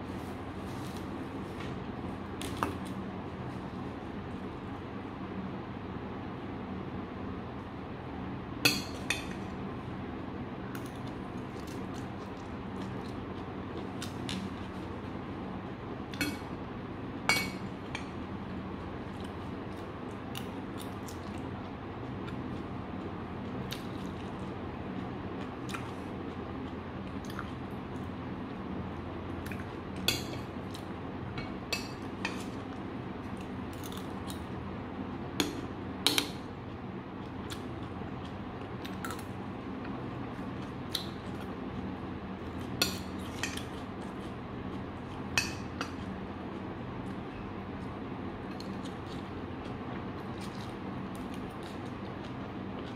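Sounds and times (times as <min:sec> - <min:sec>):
low background hum: 0:00.0 - 0:52.9.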